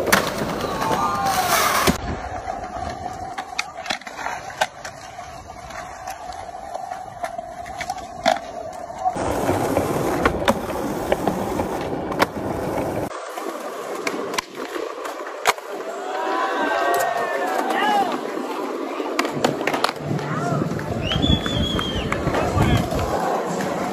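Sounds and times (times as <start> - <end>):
skateboard rolling on stone: 0.0 - 23.9
skateboard clacks: 16.9 - 23.9.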